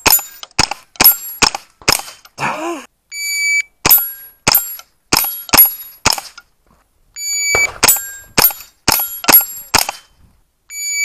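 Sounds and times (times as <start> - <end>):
rifle shots: 0.0 - 2.2, 3.8 - 6.4, 7.4 - 10.1.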